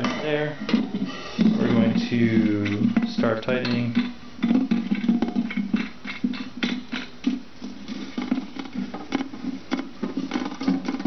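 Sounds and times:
plastic nut clicking and scraping: 0:04.0 - 0:11.0.

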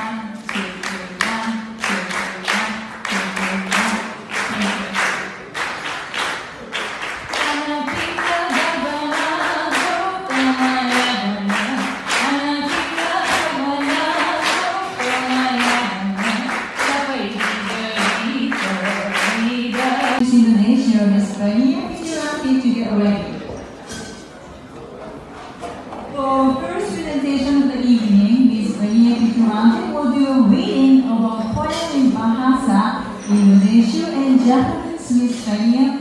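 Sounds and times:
woman singing into a microphone: 0:00.0 - 0:05.0, 0:07.3 - 0:23.3, 0:26.2 - 0:36.0
hand claps: 0:00.4 - 0:20.2.

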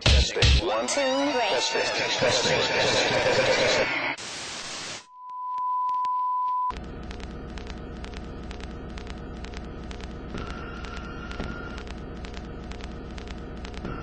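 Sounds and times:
low hum: 0:06.7 - 0:14.0
rapid regular ticking: 0:06.7 - 0:14.0.

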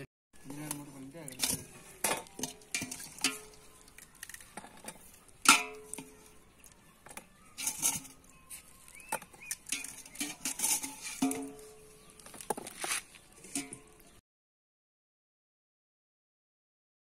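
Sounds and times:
water splashing and dripping: 0:00.5 - 0:06.9.

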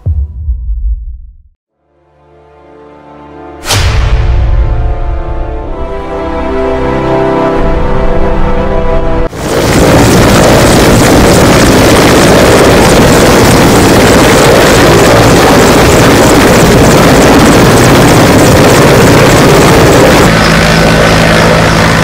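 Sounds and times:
helicopter turbines and rotor: 0:06.2 - 0:22.0.

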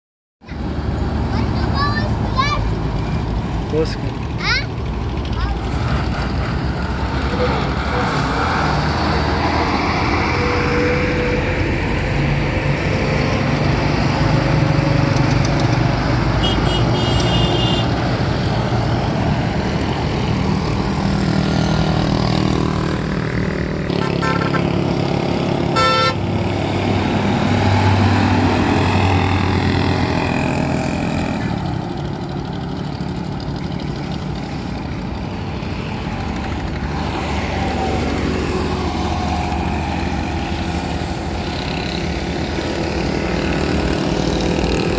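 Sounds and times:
truck diesel engine: 0:00.4 - 0:44.9
vehicles passing: 0:00.4 - 0:44.9
horn blasts: 0:16.4 - 0:17.9, 0:23.9 - 0:24.7, 0:25.7 - 0:26.3.

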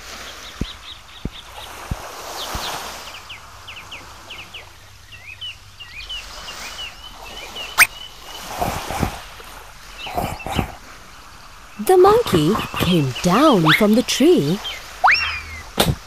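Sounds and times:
warbling bird call: 0:12.6 - 0:16.0
cartoon bird chirps: 0:12.7 - 0:15.9.

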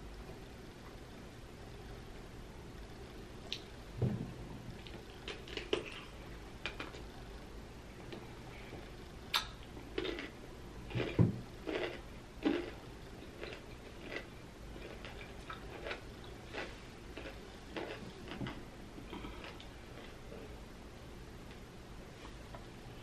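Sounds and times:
crunchy chewing: 0:04.8 - 0:07.2, 0:08.1 - 0:20.6.

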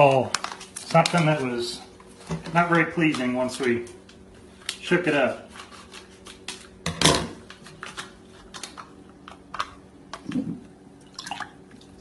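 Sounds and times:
foil drink pouch crinkling: 0:00.0 - 0:01.7.

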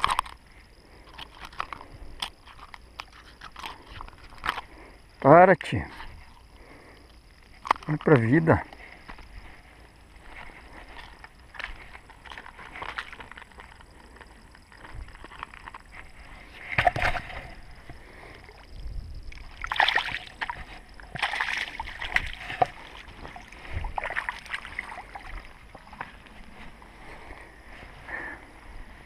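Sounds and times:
fish splashing in shallow water: 0:15.0 - 0:26.5.

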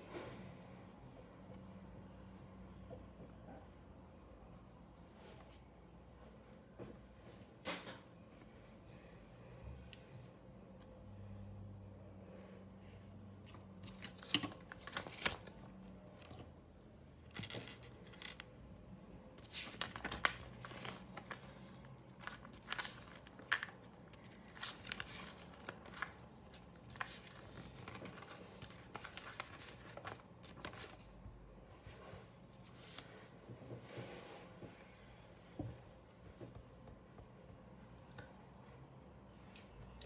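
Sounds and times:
plastic packaging rustling: 0:19.4 - 0:31.1.

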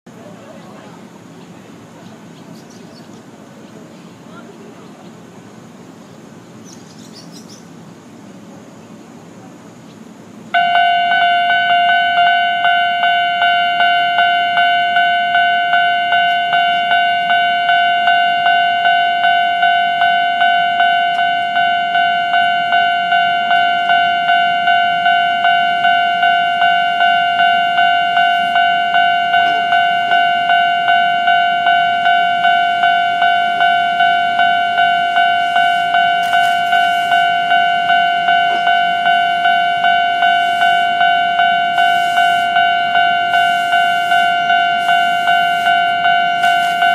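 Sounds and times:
level-crossing alarm dinging: 0:10.5 - 0:46.9.

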